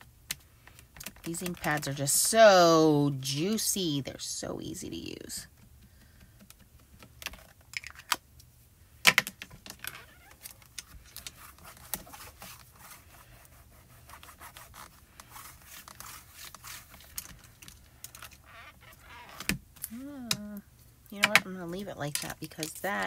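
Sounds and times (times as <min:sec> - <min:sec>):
hands rubbing on acrylic: 0:10.0 - 0:19.4.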